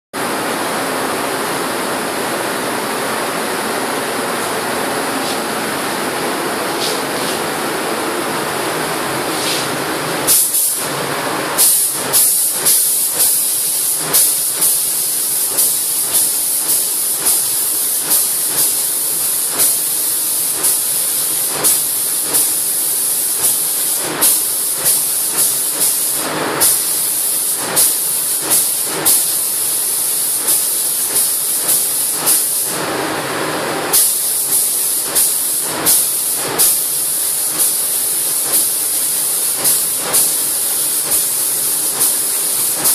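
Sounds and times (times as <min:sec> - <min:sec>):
paint spray gun hissing blasts: 0:06.6 - 0:07.7, 0:09.2 - 0:32.8, 0:33.9 - 0:42.9
air hiss: 0:09.2 - 0:10.9, 0:11.6 - 0:32.7, 0:33.9 - 0:42.9.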